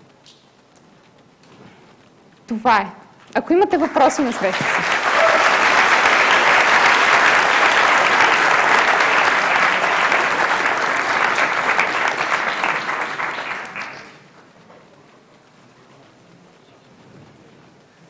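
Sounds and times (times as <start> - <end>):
audience applauding: 3.7 - 14.3.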